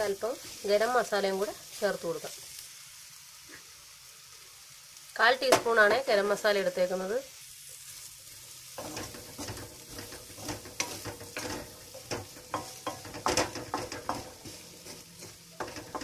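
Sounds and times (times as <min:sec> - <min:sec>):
light frying sizzle: 0:00.0 - 0:16.0
spatula scraping metal pan: 0:08.8 - 0:16.0.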